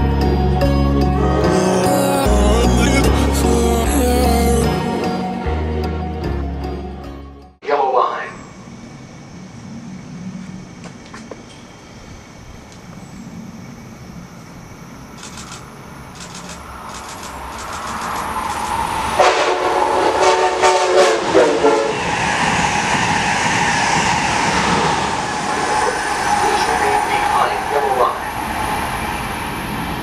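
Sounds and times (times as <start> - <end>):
train rumble and rush: 8.1 - 30.0
train horn blasts: 19.2 - 22.1.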